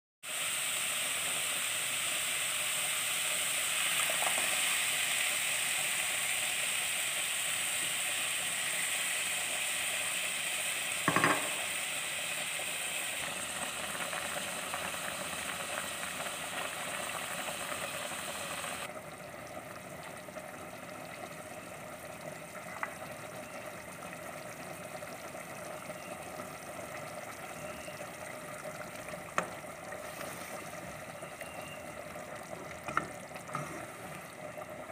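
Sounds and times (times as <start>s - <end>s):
meat sizzling in a pot: 0.2s - 19.0s
sharp knock: 11.1s - 11.6s.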